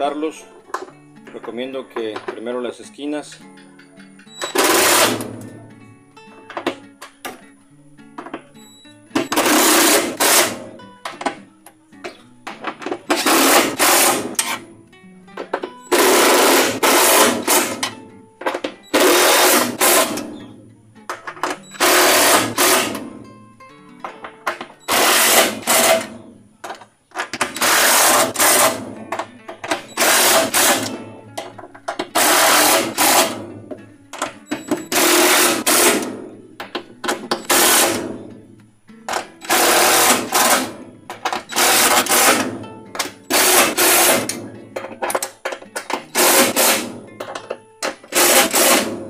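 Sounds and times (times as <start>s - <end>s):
cordless drill driving screws: 4.5s - 5.3s, 15.9s - 17.9s, 19.0s - 20.3s, 21.8s - 23.0s, 24.9s - 26.1s, 27.4s - 28.8s, 30.0s - 31.0s, 32.2s - 33.4s, 34.9s - 36.1s, 37.4s - 38.0s, 39.4s - 40.7s, 41.5s - 42.5s, 43.3s - 44.3s, 46.2s - 46.9s, 48.1s - 48.9s.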